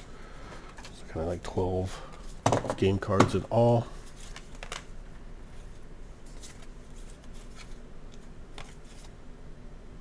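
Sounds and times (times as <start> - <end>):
cards sliding and rustling: 4.0 - 4.9, 5.5 - 9.2.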